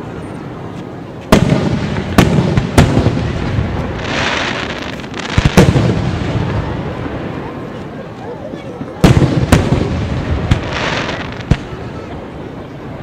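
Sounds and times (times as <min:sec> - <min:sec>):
fireworks bursting with echo: 0:01.1 - 0:08.2, 0:09.0 - 0:13.0
fireworks hissing: 0:01.3 - 0:08.0, 0:09.0 - 0:12.0.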